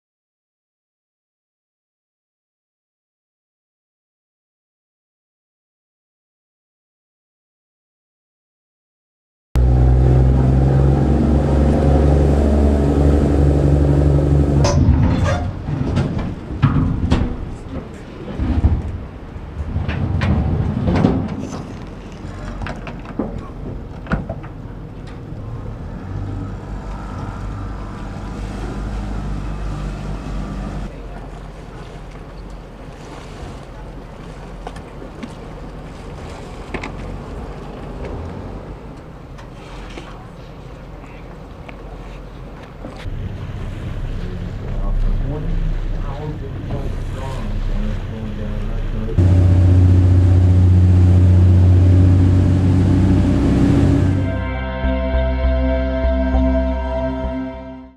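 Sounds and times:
water rushing in wake: 9.6 - 54.4
wind: 9.6 - 55.4
boat engine humming: 9.6 - 57.9.

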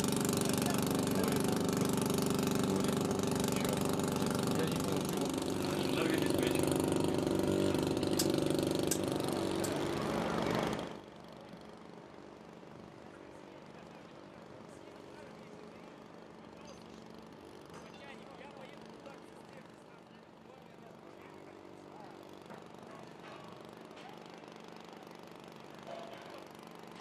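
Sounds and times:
engine droning: 0.0 - 11.1.

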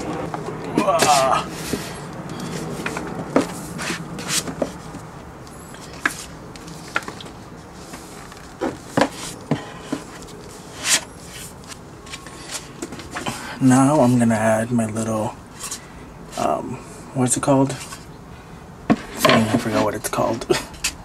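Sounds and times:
paper rustling and sliding: 1.0 - 5.0, 5.8 - 13.4.

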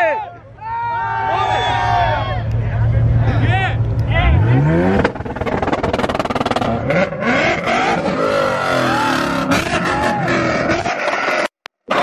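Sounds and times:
car engines revving hard: 2.0 - 11.5
exhaust pops and crackles: 2.5 - 6.9.

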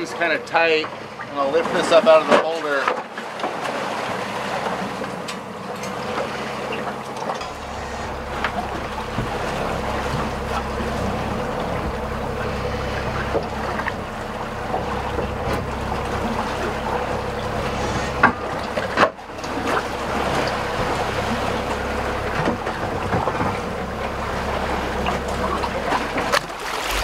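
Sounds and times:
diesel boat engine drone: 0.0 - 27.0
water noise: 0.0 - 27.0
deep low rumble: 6.0 - 27.0.

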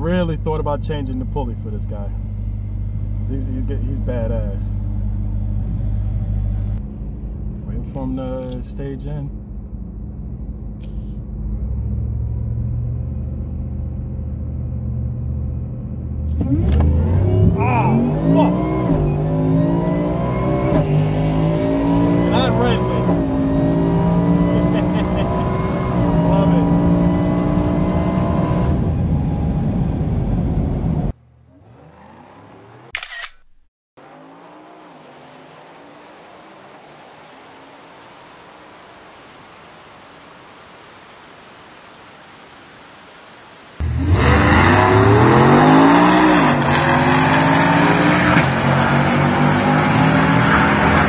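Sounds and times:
loud low engine rumble: 0.0 - 20.0
engines pulling away: 0.0 - 33.3, 34.0 - 40.9, 43.8 - 51.0.

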